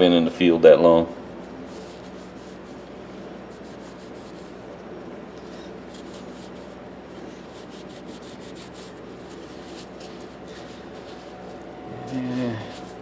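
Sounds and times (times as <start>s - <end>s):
steady low hum: 0.0s - 13.0s
rag rubbing a handle: 5.9s - 13.0s.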